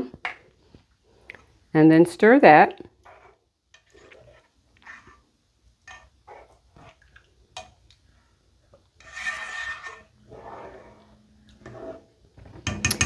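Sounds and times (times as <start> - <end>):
spatula scraping a metal pan: 3.0 - 5.2, 5.9 - 7.0, 9.0 - 12.1.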